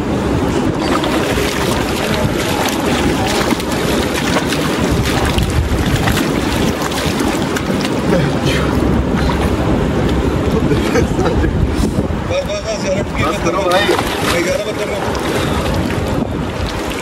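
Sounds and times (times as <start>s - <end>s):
river rushing over rocks: 0.0s - 10.6s
water splashing: 0.0s - 17.0s.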